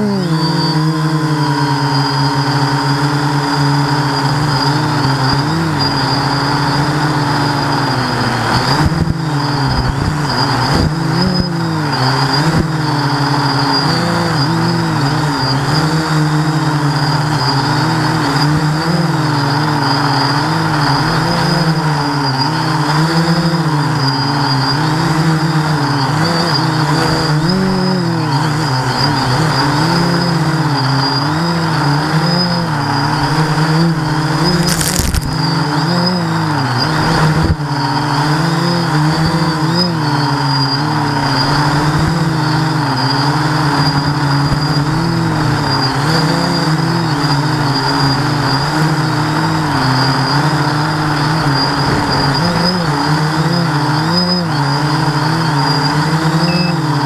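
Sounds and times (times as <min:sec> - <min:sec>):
drone propellers buzzing: 0:00.0 - 0:57.0
sharp noise burst: 0:34.4 - 0:35.6.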